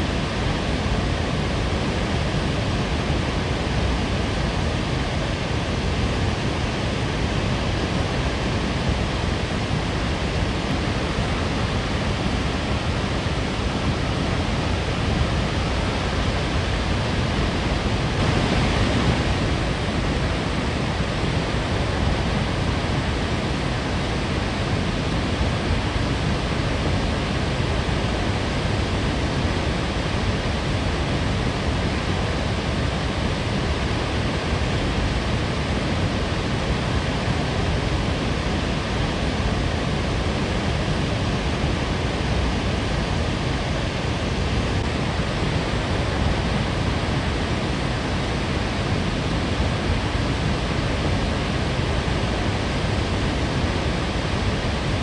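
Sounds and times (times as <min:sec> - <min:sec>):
waterfall rushing: 0:17.7 - 0:22.6.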